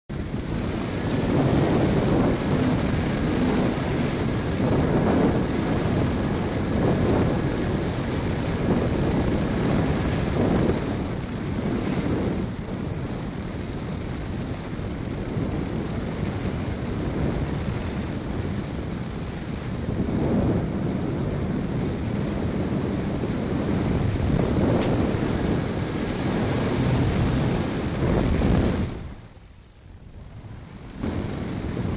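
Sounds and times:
air rushing over microphone: 0.1s - 31.9s
high motor and propeller whine: 0.1s - 31.9s.

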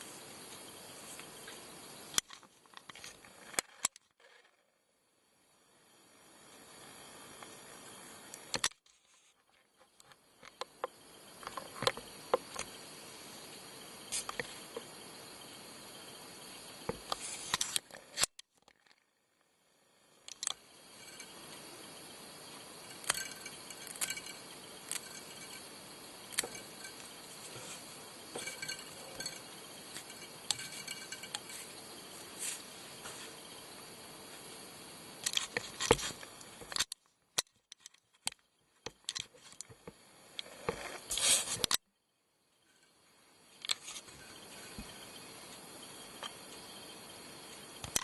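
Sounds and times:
steady faint hiss: 0.0s - 3.6s, 5.0s - 18.3s, 19.6s - 36.8s, 42.4s - 48.0s
small clicks and handling noises: 2.1s - 4.5s, 8.3s - 12.7s, 20.2s - 21.3s, 22.9s - 25.6s, 35.2s - 41.8s, 43.6s - 44.1s, 47.8s - 48.0s.

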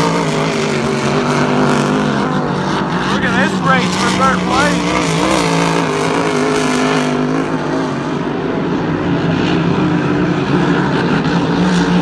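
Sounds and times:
racing boat engines droning: 0.0s - 12.0s.

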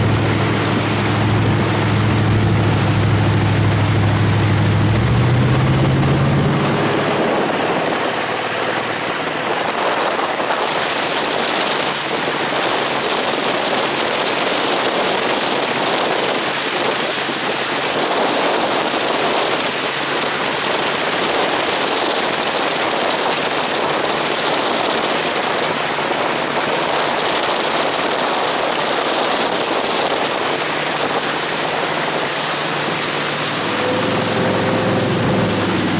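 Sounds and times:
deep boat engine note: 0.0s - 9.0s, 30.1s - 35.9s
rushing hiss of water: 0.0s - 35.9s.

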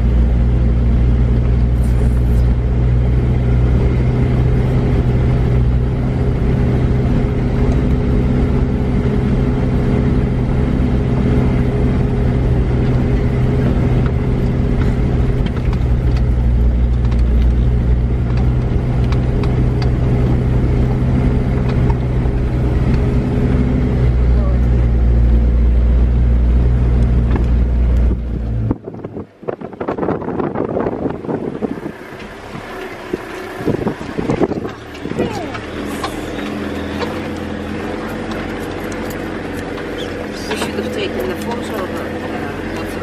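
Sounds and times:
truck engine running: 0.0s - 43.0s
stones clicking under tyres: 11.9s - 23.7s, 30.8s - 43.0s.

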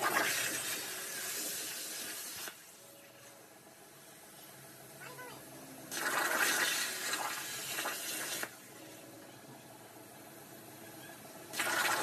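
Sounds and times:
cutting torch hissing: 0.0s - 2.8s, 11.5s - 12.0s
faint steady hum: 0.0s - 12.0s.

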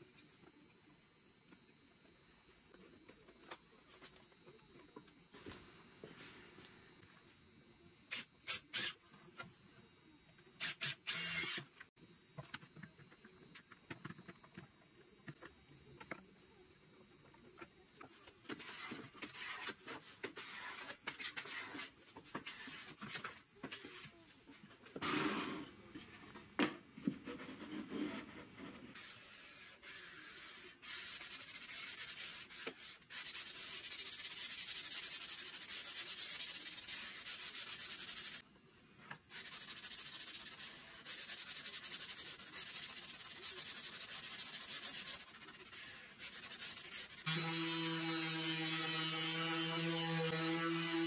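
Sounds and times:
sandpaper rubbing on wood: 18.6s - 19.8s, 20.4s - 23.0s, 28.9s - 38.4s, 39.3s - 50.8s.

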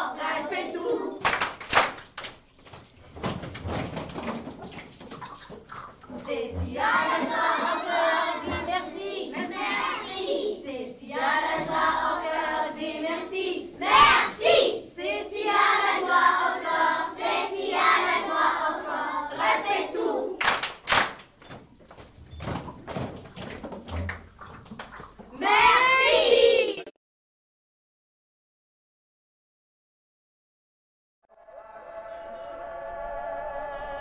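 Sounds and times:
group of voices singing: 0.0s - 1.2s, 6.1s - 20.4s, 31.4s - 34.0s.

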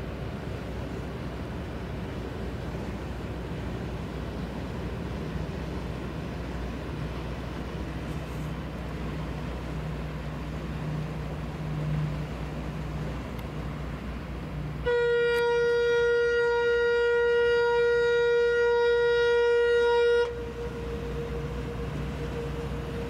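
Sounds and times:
ship whistle long blast: 14.8s - 23.0s.

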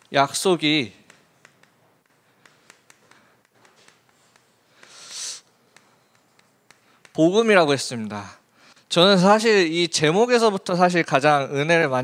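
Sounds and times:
chalk scratching on chalkboard: 1.0s - 7.5s
short hiss: 4.8s - 5.5s.

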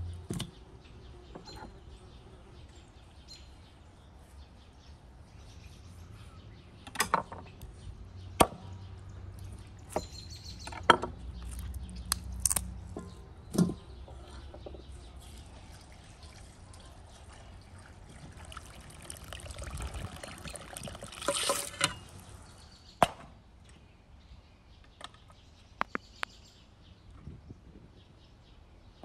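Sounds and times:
liquid pouring and trickling: 15.1s - 22.5s.

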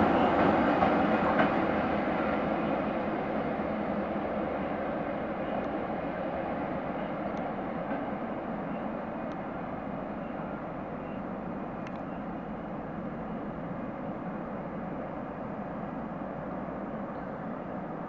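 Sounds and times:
train wheels rumbling on rails: 0.0s - 18.0s.

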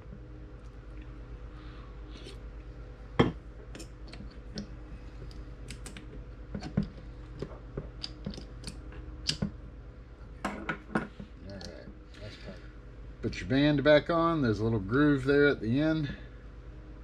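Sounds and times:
steady low hum: 0.0s - 17.0s
small parts clicking and tapping: 3.7s - 9.6s.

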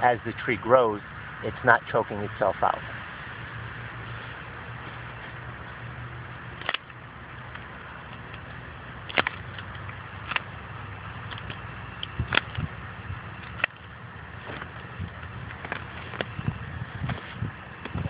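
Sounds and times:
steady low hum: 0.0s - 18.0s
pruning shears snipping roots: 6.5s - 10.6s, 11.2s - 18.0s.

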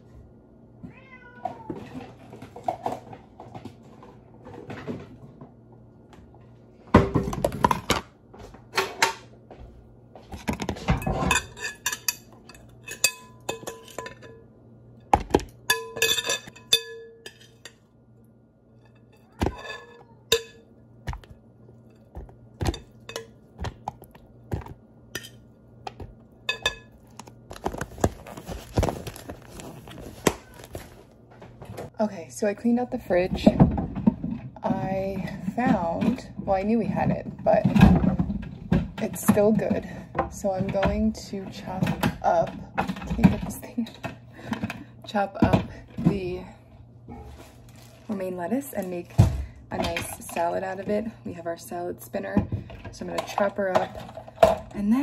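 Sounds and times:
cat meowing: 0.9s - 1.8s
dishes and containers clattering: 1.4s - 5.5s, 6.9s - 18.0s, 18.8s - 31.9s, 33.2s - 46.5s, 48.8s - 51.1s, 52.3s - 55.0s
rustling: 27.0s - 31.2s, 47.1s - 48.3s.

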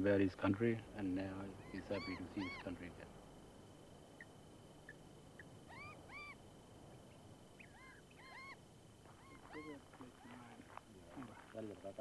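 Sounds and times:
faint high whine: 0.0s - 12.0s
faint bird calls: 1.2s - 3.0s, 4.2s - 11.6s.

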